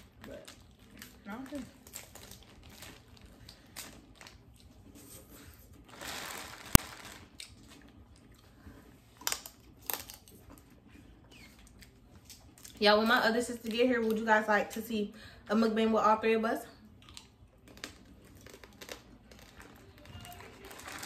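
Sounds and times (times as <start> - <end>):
plastic bag crinkling: 0.0 - 5.0, 5.8 - 8.0, 17.7 - 21.0.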